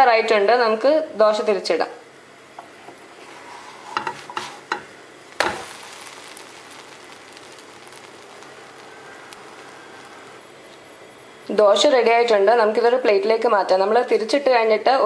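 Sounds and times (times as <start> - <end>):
food sizzling in a pan: 2.5 - 12.0
spatula tapping a pan: 4.0 - 8.4.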